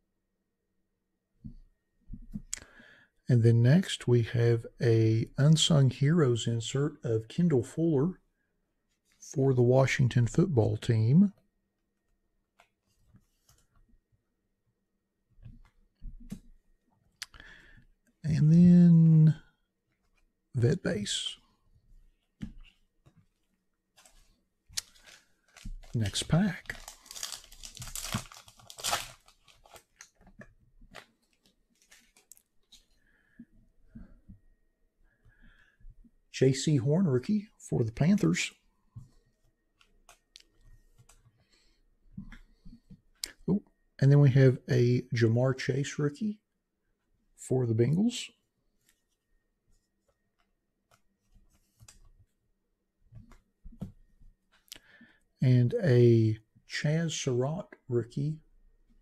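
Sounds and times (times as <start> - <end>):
cards rustling and clicking: 22.3 - 32.9
plastic wrapper tearing and crinkling: 24.8 - 30.2.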